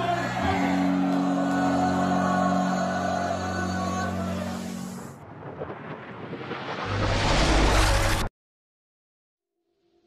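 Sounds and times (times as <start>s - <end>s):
loud rushing noise: 4.6s - 8.3s
low rumble: 5.0s - 8.3s.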